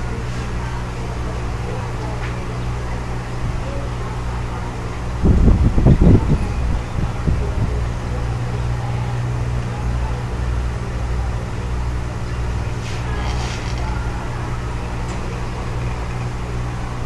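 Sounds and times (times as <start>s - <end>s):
aquarium air pump humming: 0.0s - 17.0s.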